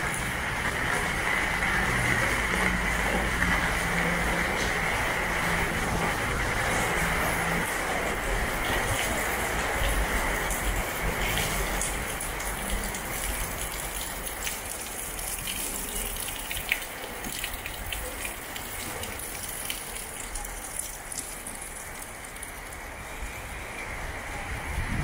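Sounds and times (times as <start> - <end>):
drips ticking: 0.0 - 24.3
heavy rain pouring: 0.0 - 25.0
water gushing: 0.0 - 25.0.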